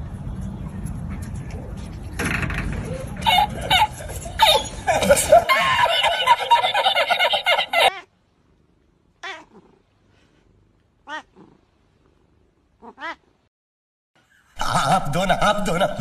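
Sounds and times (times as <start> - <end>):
man laughing loudly: 3.0 - 7.9
cat meowing: 9.2 - 9.7, 11.0 - 11.5, 12.8 - 13.3.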